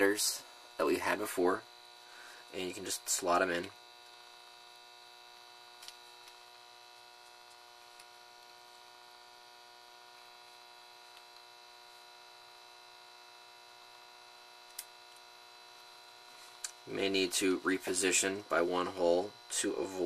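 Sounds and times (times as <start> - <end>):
faint electrical hum: 0.0 - 20.0.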